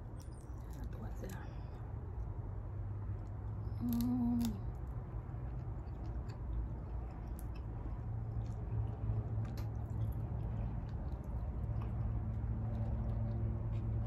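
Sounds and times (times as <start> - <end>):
low steady hum: 0.0 - 14.0
person chewing: 3.1 - 14.0.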